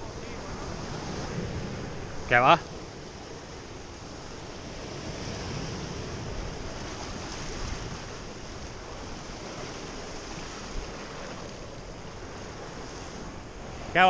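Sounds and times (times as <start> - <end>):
surf breaking over rocks: 0.0 - 14.0.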